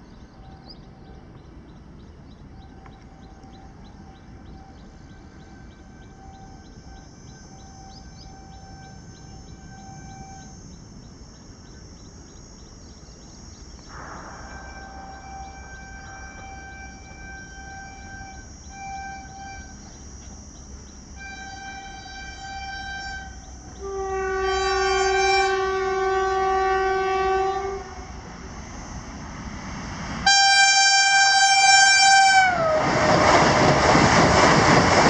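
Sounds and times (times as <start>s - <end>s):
low steady rumble: 0.0s - 32.0s
train horn blasts: 2.7s - 10.8s, 13.9s - 29.0s, 30.2s - 33.3s.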